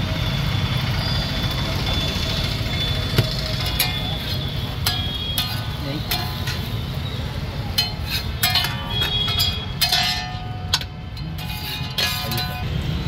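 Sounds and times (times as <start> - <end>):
metal spatula clanking on griddle: 3.6 - 7.0, 7.7 - 12.8.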